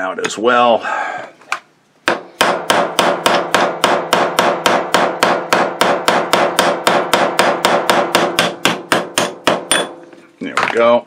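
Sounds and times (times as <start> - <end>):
hammer tapping metal punch: 2.1 - 10.0.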